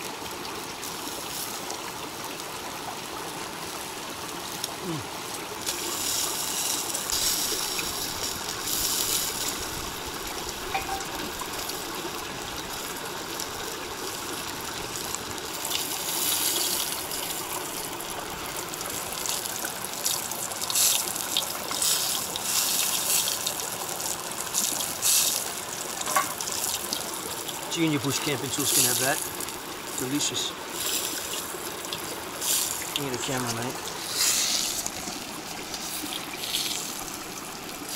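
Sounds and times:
creek running over rocks: 0.0 - 37.9
higher hiss of water: 4.7 - 12.1, 15.2 - 37.9.

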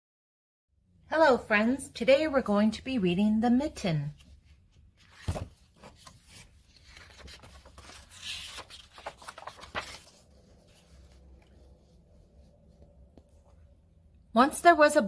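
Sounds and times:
book pages turning: 4.2 - 13.6.

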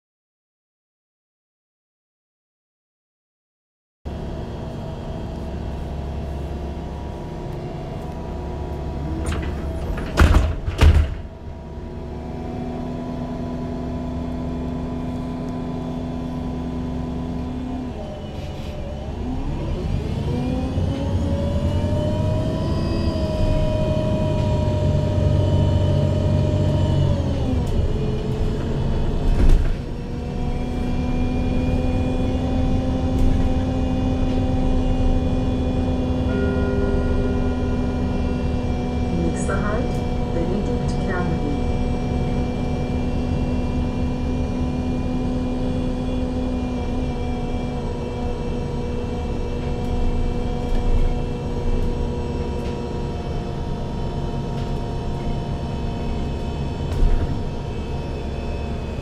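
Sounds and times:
bus engine running: 4.1 - 59.0
loud knocks: 10.0 - 11.3.

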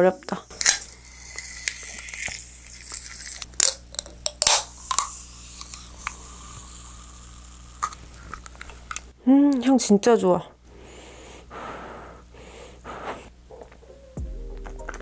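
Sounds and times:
can pull tab cracking open: 0.6 - 6.2.

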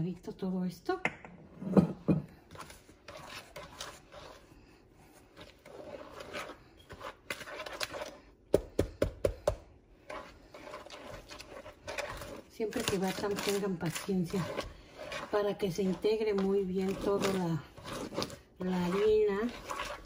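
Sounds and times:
whisk scraping in plastic bowl: 2.4 - 8.4, 9.9 - 20.0.

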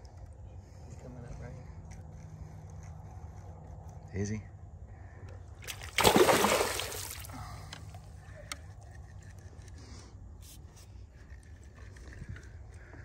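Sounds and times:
fish splashing at water surface: 5.6 - 7.4
small knocks and scrapes: 8.5 - 13.0.

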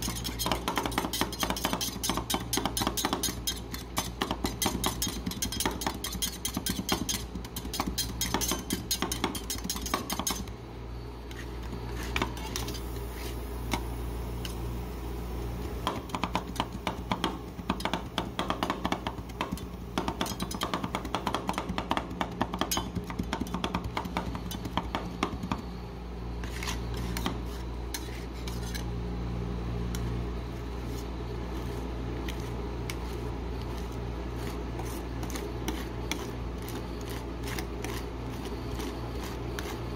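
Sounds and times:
spatula scraping: 0.0 - 10.5, 11.3 - 13.8, 26.4 - 29.0, 29.9 - 39.9
steady low hum: 0.0 - 39.9.

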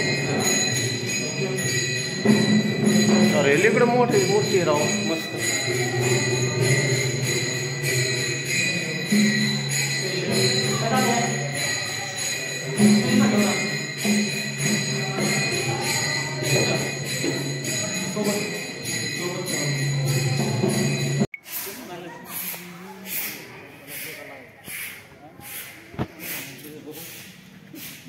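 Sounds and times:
small bells jingling: 0.0 - 21.3.

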